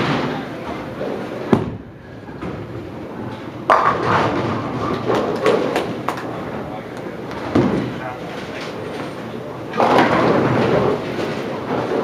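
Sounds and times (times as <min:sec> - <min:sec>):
bowling pins crashing: 0:00.0 - 0:02.9, 0:03.6 - 0:06.2, 0:09.7 - 0:12.0
bowling ball rolling: 0:00.0 - 0:06.6, 0:07.2 - 0:12.0.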